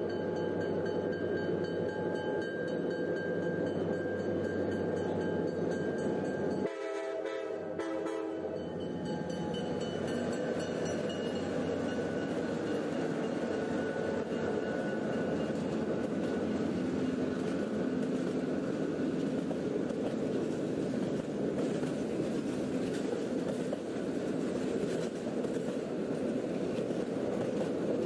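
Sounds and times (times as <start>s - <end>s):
train rumbling on rails: 0.0s - 28.0s
train horn blast: 6.6s - 8.7s.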